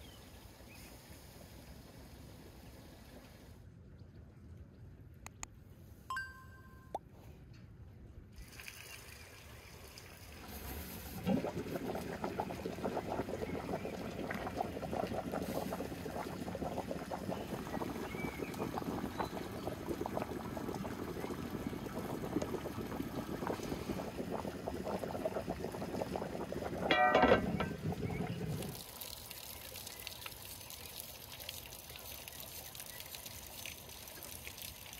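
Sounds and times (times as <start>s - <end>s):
ringing sound: 6.1s - 7.0s
water boiling: 8.4s - 34.9s.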